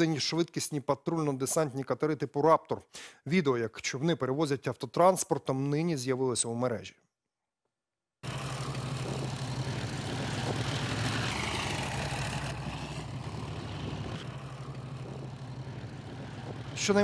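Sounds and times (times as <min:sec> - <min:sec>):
low engine drone: 0:08.2 - 0:17.0.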